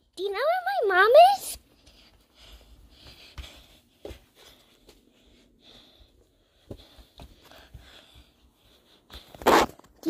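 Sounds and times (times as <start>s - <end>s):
soft footsteps on hard floor: 1.6s - 9.4s.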